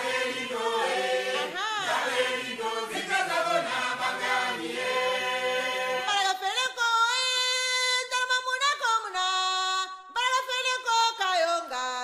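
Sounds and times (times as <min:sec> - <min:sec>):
voices chanting together: 0:00.0 - 0:06.2.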